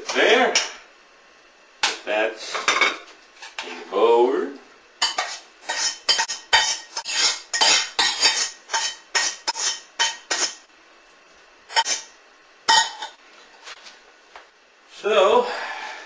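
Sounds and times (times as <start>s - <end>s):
utensil scraping metal pot: 5.0s - 10.6s, 11.7s - 12.1s.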